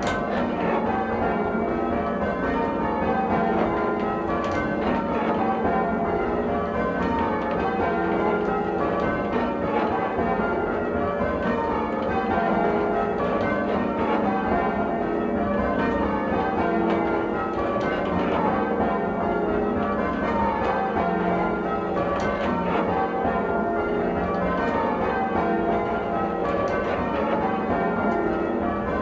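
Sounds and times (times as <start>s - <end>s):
church bells change ringing: 0.0s - 29.0s.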